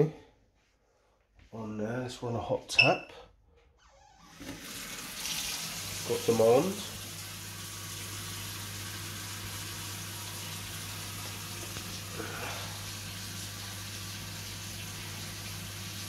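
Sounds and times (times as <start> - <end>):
tap water running into sink: 4.3 - 16.0.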